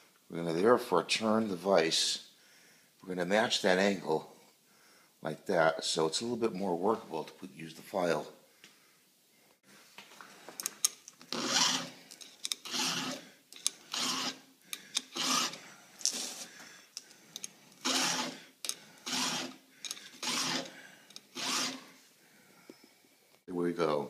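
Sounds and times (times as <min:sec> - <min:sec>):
file rasping on steel chain: 0:11.3 - 0:16.4, 0:17.4 - 0:21.9.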